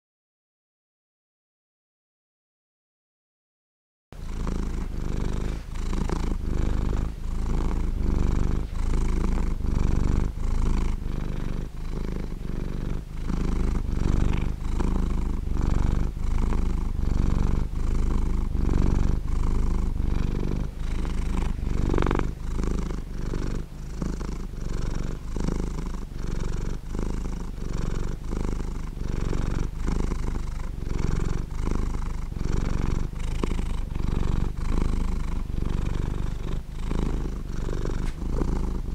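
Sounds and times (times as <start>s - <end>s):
cat purring: 4.2s - 38.9s.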